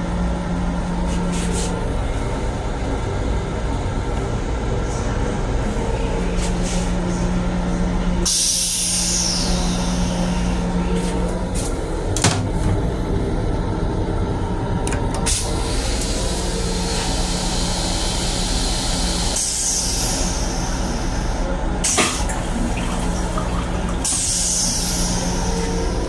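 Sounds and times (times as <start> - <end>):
train car hum: 0.0 - 26.0
water rushing into toilet bowl: 21.9 - 24.5
toilet flush clicks: 21.9 - 24.6.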